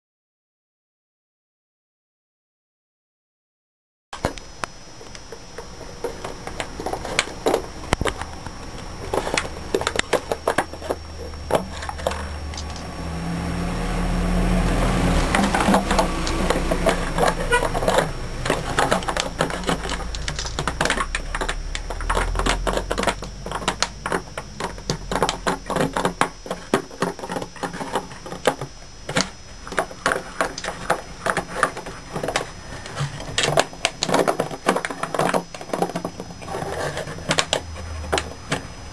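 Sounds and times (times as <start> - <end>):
dog chewing plastic bottle: 15.2 - 38.7.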